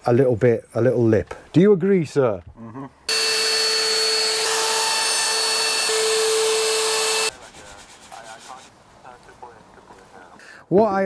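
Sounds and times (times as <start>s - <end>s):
router whining: 3.1s - 7.3s
sandpaper scraping wood: 6.0s - 8.8s.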